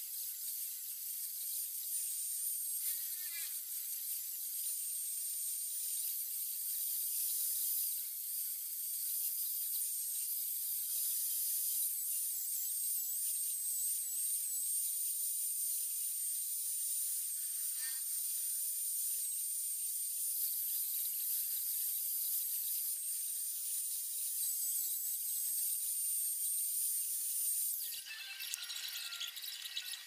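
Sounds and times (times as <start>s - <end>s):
angle grinder whining: 27.8s - 30.0s.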